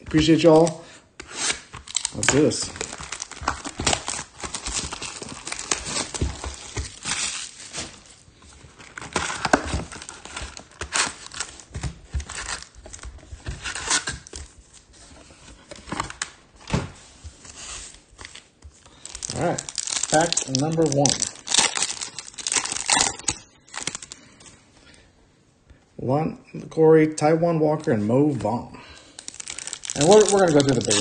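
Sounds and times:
packaging crinkling and tearing: 0:01.4 - 0:14.8, 0:18.2 - 0:24.2, 0:29.0 - 0:31.0.

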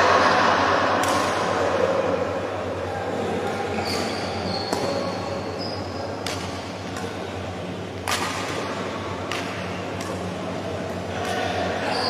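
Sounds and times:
steady low hum: 0:00.0 - 0:11.9
racket hitting shuttlecock: 0:01.0 - 0:01.6, 0:06.2 - 0:07.2, 0:08.0 - 0:10.4
shoes squeaking on court: 0:03.7 - 0:06.4.

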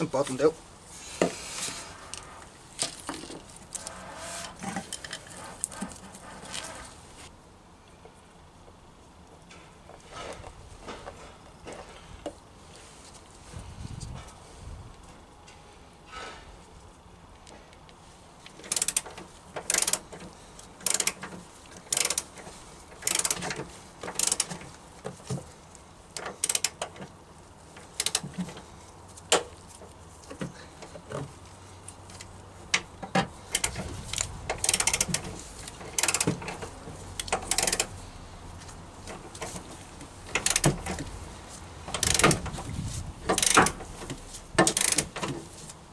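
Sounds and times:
socket ratchet clicking: 0:18.7 - 0:20.0, 0:20.8 - 0:21.2, 0:21.9 - 0:22.3, 0:23.0 - 0:23.5, 0:24.1 - 0:24.6, 0:26.4 - 0:27.0, 0:28.0 - 0:28.2, 0:33.5 - 0:35.2, 0:35.9 - 0:36.4, 0:37.2 - 0:37.9, 0:40.3 - 0:41.0, 0:41.9 - 0:42.4, 0:43.3 - 0:43.8, 0:44.6 - 0:45.2.

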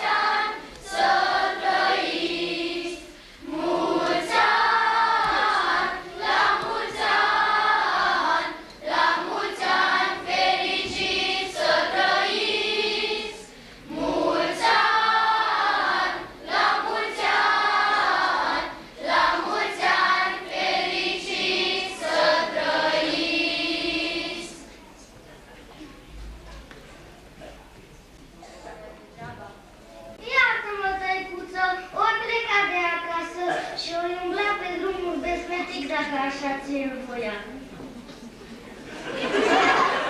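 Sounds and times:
children's choir singing: 0:00.0 - 0:24.8, 0:38.8 - 0:40.0.

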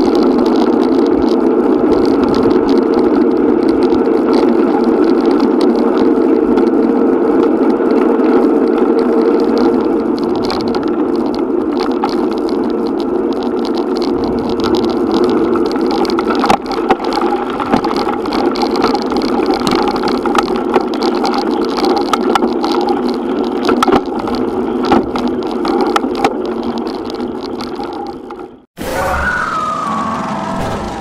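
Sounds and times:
bike knocking and rattling: 0:00.0 - 0:28.6
wind and road rumble: 0:00.0 - 0:31.0
rising tone: 0:28.8 - 0:31.0.

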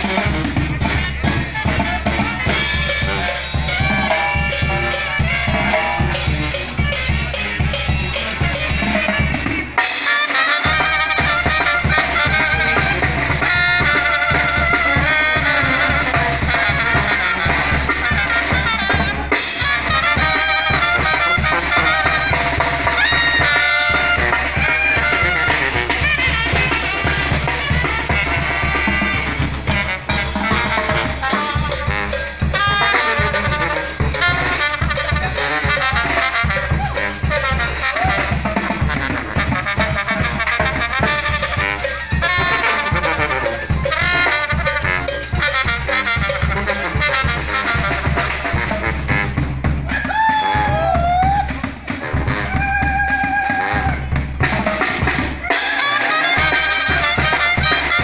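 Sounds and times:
bass drum: 0:00.0 - 0:09.8, 0:10.6 - 0:58.0
trombone: 0:00.0 - 0:50.8, 0:51.5 - 0:58.0
cymbal and snare drums: 0:00.0 - 0:58.0
trumpets: 0:00.0 - 0:58.0
sousaphone: 0:00.1 - 0:17.1.

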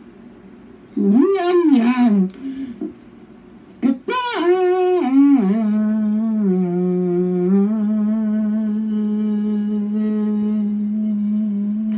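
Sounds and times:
person humming or singing: 0:03.8 - 0:11.9.

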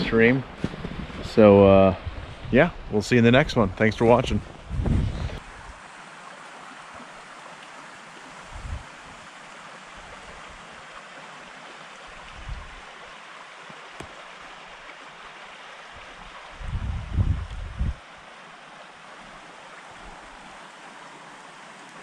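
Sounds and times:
wind rumble on microphone: 0:00.0 - 0:05.8, 0:08.4 - 0:09.0, 0:12.2 - 0:12.8, 0:16.3 - 0:18.0
stream water rushing: 0:00.0 - 0:22.0.

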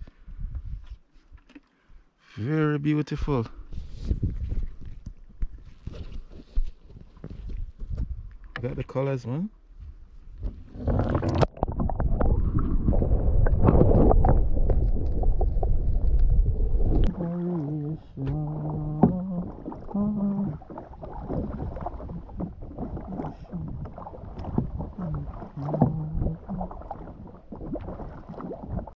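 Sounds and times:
underwater water rumble: 0:09.9 - 0:29.0
water lapping against hull: 0:10.0 - 0:29.0
kayak paddle splashing: 0:10.4 - 0:29.0
low hum-like tones: 0:11.8 - 0:27.2.

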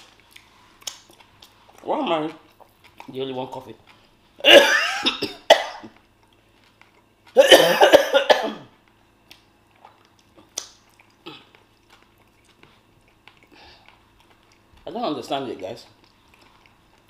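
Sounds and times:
woman coughing: 0:04.4 - 0:06.0, 0:07.4 - 0:08.7.

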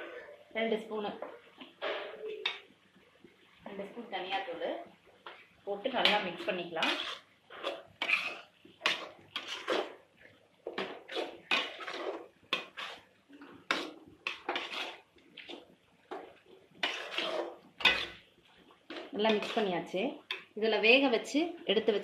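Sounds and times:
metal ladle scraping a pan: 0:05.2 - 0:10.0, 0:10.6 - 0:18.3, 0:18.9 - 0:20.5.

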